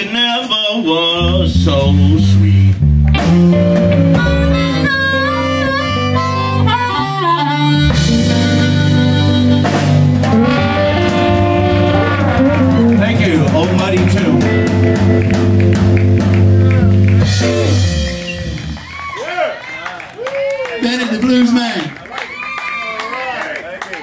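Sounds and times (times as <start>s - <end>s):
blues band playing: 0.0s - 19.8s
amplified harmonica: 3.3s - 15.2s.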